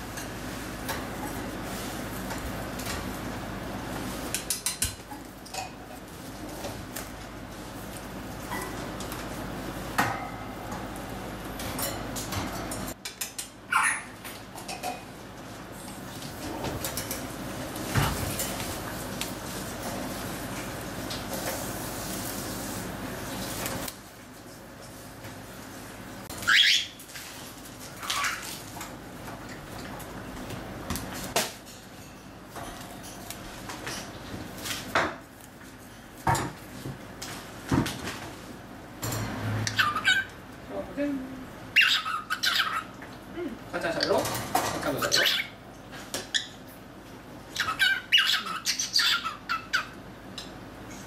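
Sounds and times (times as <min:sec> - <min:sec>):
cockatiel calls: 0:13.7 - 0:14.1, 0:26.4 - 0:27.0, 0:39.7 - 0:40.3, 0:41.7 - 0:42.9, 0:47.6 - 0:50.0.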